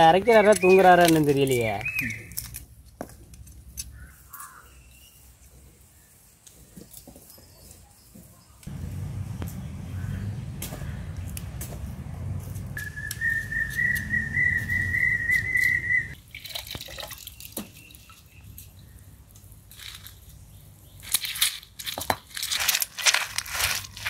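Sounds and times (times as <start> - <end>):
stone crushing dried chillies: 0.2 - 4.6, 19.4 - 24.0
person whistling: 12.8 - 16.1.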